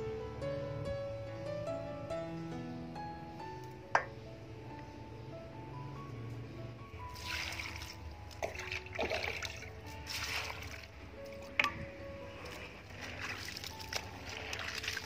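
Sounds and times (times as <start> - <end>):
background music: 0.0 - 15.0
water splashing and trickling: 7.1 - 15.0.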